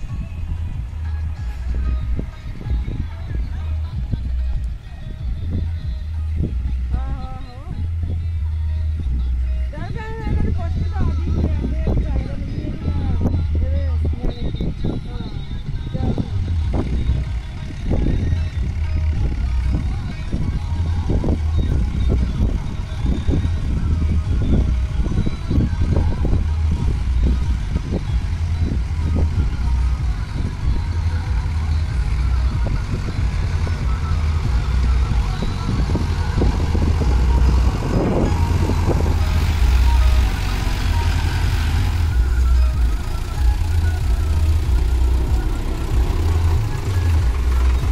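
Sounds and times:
tractor engine under load: 14.9 - 47.9.

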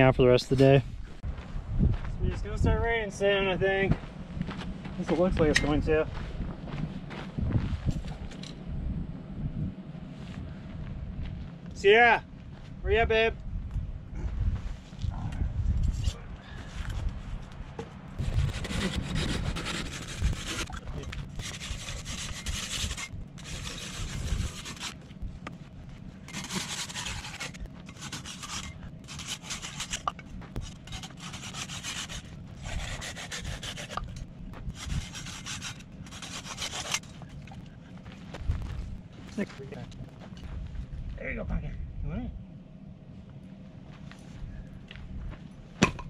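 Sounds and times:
hand saw cutting wood: 18.2 - 25.0, 26.3 - 37.3.

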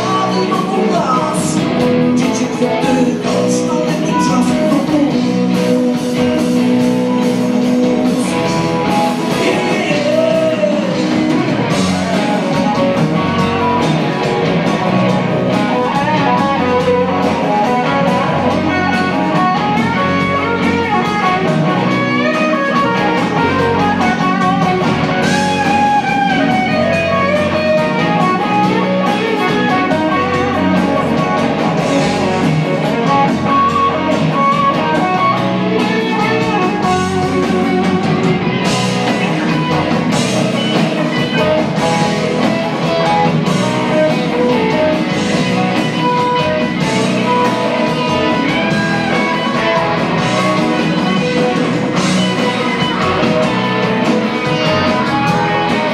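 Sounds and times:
blues-rock band playing: 0.0 - 55.9
electric guitar lead: 0.0 - 55.9.

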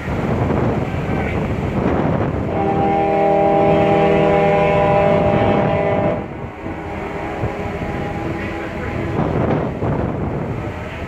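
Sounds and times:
ferry horn blast: 2.4 - 9.4.

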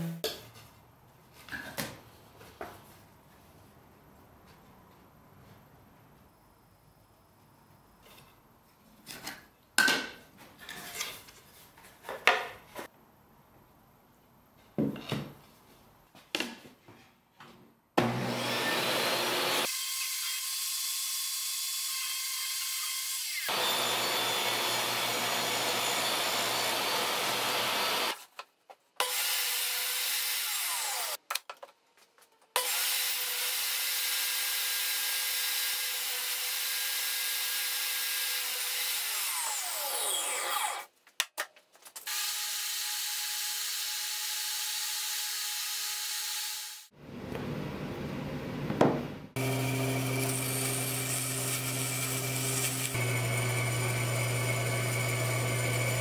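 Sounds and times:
table saw cutting wood: 18.0 - 28.2, 29.0 - 31.2, 32.6 - 40.9, 49.4 - 56.0.

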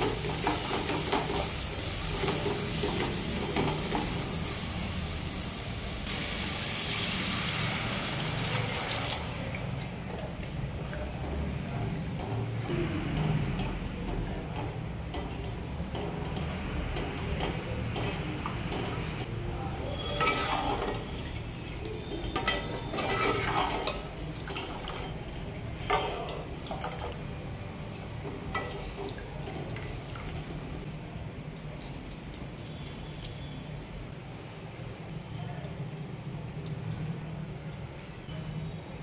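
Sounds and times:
spatula scraping pot: 19.9 - 21.4, 22.0 - 26.5.

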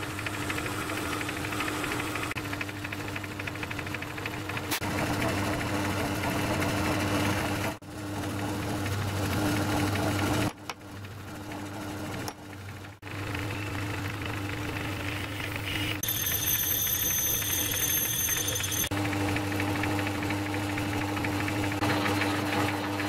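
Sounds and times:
lathe motor humming: 0.0 - 23.0
drill high-pitched whine: 15.1 - 18.9.

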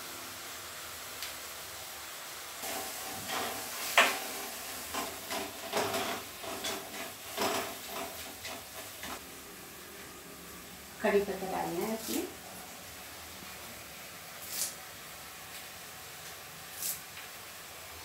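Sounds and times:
masala sizzling in a pan: 0.0 - 18.0
spatula scraping and knocking pan: 2.6 - 9.2.

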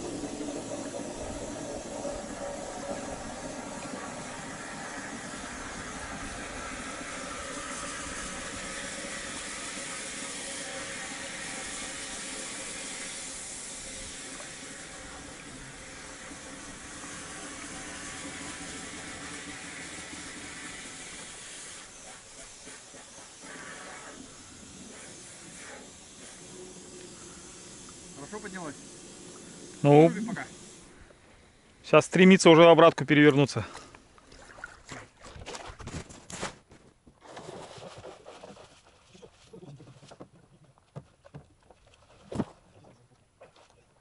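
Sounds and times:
compressed air hissing: 0.0 - 32.0.

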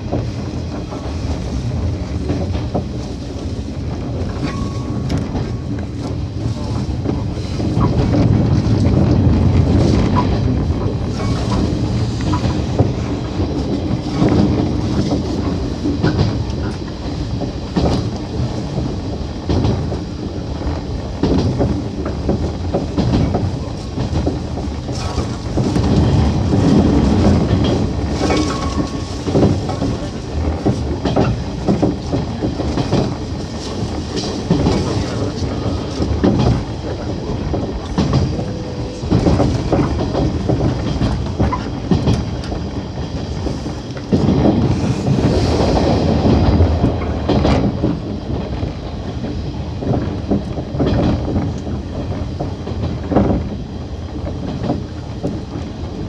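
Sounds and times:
train wheels clacking on rails: 0.0 - 56.0
grass scraping against train: 22.4 - 47.7.

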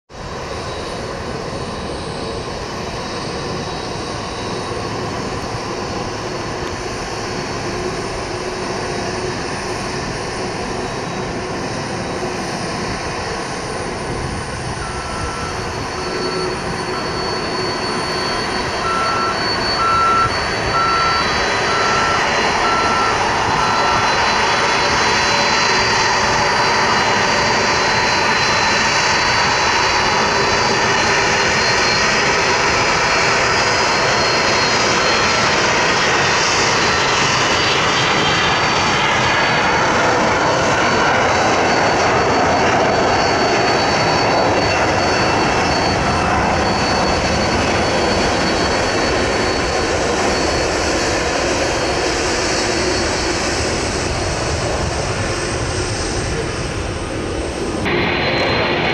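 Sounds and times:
jet engines whining at taxi power: 0.1 - 58.9
faint beep: 14.7 - 27.0, 41.8 - 50.9.

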